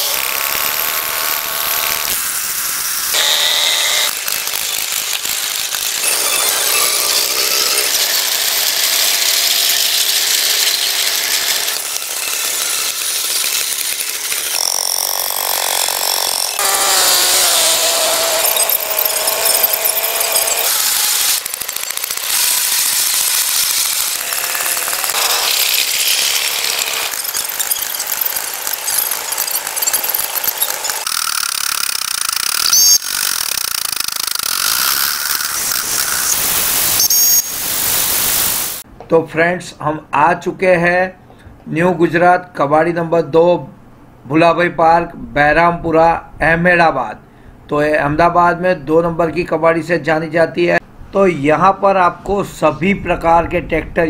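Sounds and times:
tractor engines clattering: 0:21.3 - 0:31.1.

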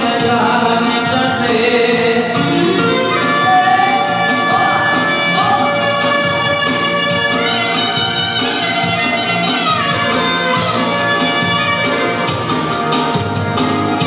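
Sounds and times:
keyboard accompaniment with beat: 0:00.0 - 0:14.0
clarinet melody: 0:02.5 - 0:12.6.

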